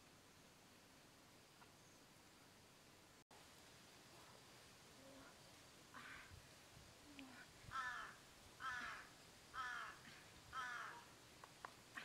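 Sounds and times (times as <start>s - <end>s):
crow cawing: 6.0s - 6.3s, 7.7s - 11.1s.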